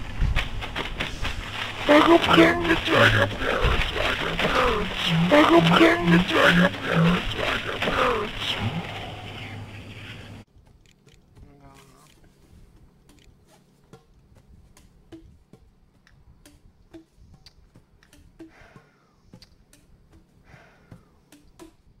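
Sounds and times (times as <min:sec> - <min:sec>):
low steady hum: 0:00.0 - 0:15.1.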